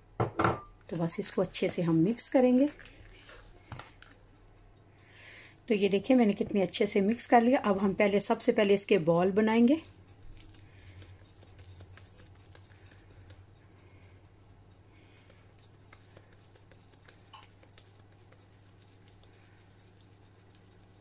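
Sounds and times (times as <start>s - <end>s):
low steady hum: 0.0s - 21.0s
wet hands squishing potato: 6.1s - 21.0s.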